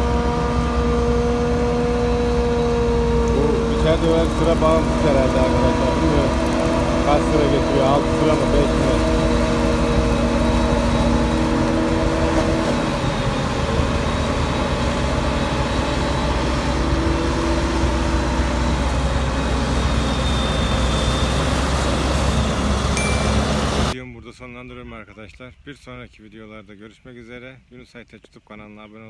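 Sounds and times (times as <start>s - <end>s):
forage harvester engine running: 0.0s - 24.0s
pitched hum: 22.6s - 24.0s.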